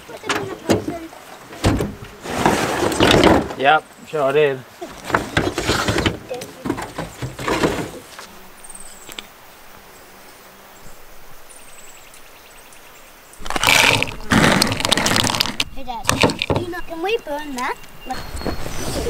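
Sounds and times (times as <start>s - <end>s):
faint high bird chirps: 16.6s - 19.0s.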